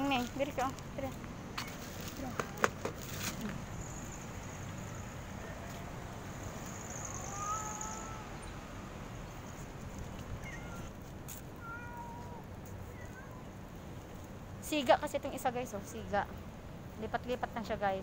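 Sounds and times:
cats meowing: 6.9s - 8.5s, 10.2s - 13.6s.

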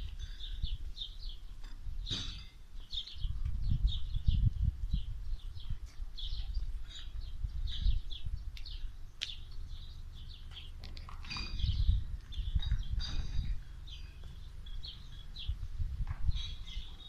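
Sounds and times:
low microphone rumble: 0.0s - 17.0s
small birds chirping: 0.0s - 17.0s.

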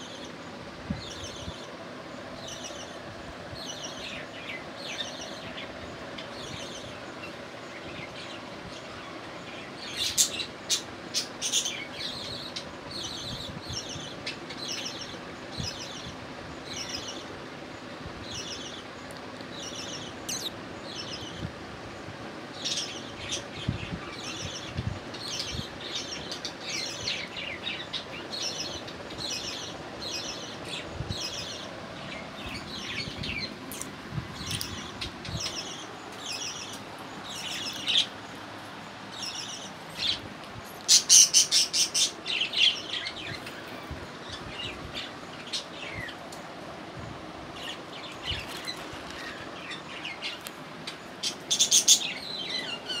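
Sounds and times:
budgerigars chirping: 51.2s - 53.0s.

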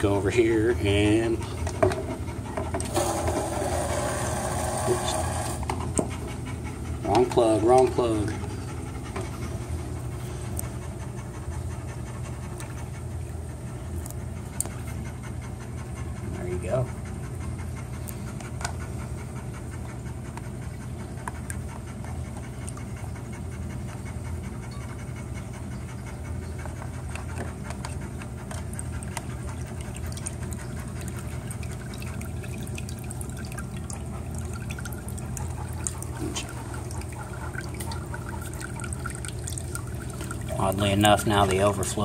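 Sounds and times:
aquarium pump humming: 2.4s - 5.8s, 28.2s - 42.0s
water trickling into plastic tub: 27.7s - 42.0s.

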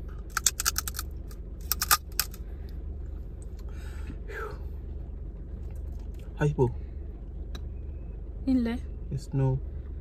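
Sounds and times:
steady low hum: 0.0s - 10.0s
crab shell cracking between teeth: 0.3s - 2.4s.

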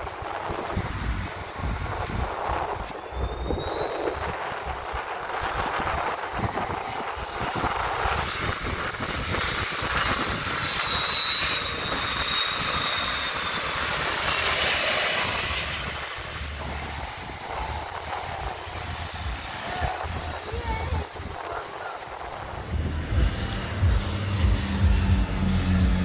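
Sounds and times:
jet airliner passing overhead: 0.0s - 26.0s.

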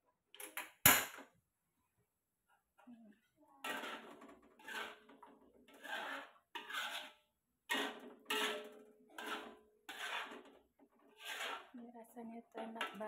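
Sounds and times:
utensil scraping metal wok: 3.6s - 13.0s.

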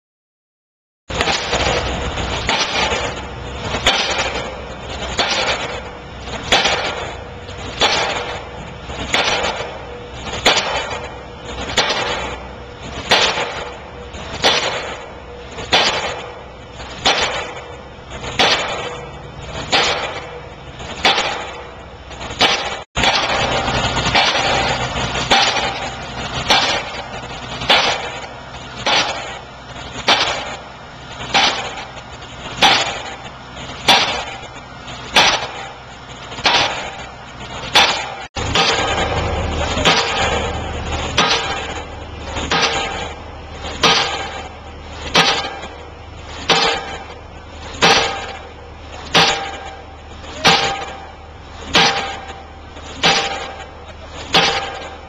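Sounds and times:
engine rumble: 1.1s - 55.0s
pile-driving hammer banging: 1.1s - 55.0s.

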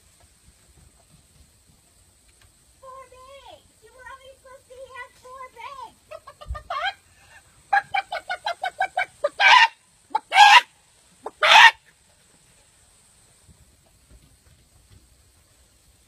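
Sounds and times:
chicken squawks: 6.1s - 11.9s
chicken clucking: 6.1s - 12.5s.

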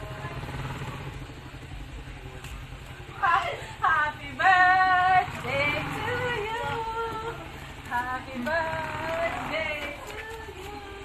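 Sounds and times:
low steady rumble: 0.0s - 11.0s
women singing: 3.2s - 11.0s.

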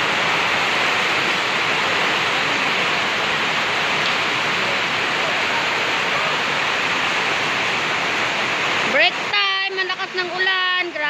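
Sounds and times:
heavy rain pouring: 0.0s - 11.0s.

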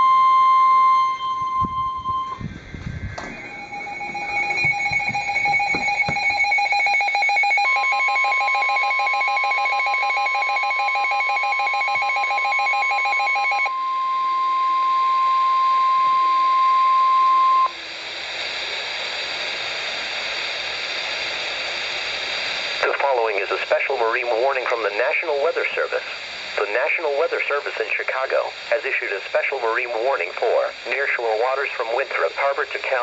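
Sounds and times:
steady warning tone: 0.0s - 17.8s
rapid electronic beeping: 3.3s - 7.5s
radio static hiss: 17.7s - 33.0s.

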